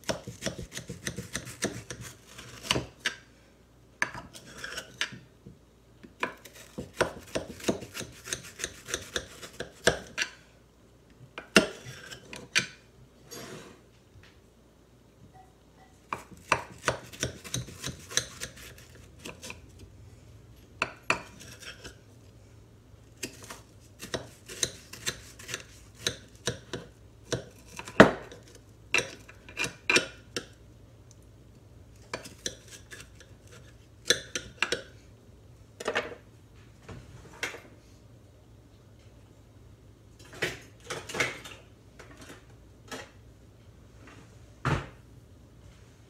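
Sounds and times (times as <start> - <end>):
knife chopping on glass dish: 0.0 - 2.9, 6.2 - 10.2.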